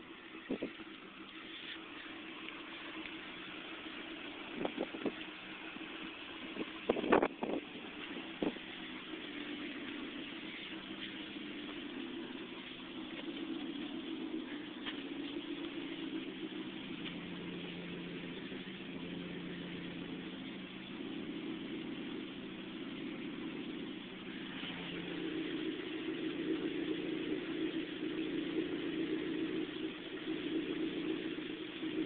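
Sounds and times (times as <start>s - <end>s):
car engine idling: 0.0s - 32.0s.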